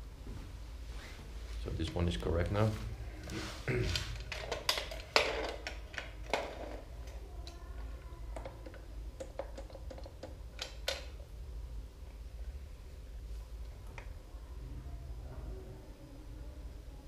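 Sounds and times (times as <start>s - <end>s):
small metal clicks and knocks: 4.2s - 11.2s.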